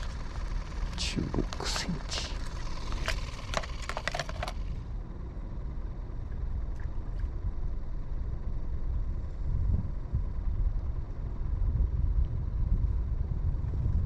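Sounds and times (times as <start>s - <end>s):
low outdoor rumble: 0.0s - 14.0s
clicks and knocks of handled gear: 2.2s - 4.6s.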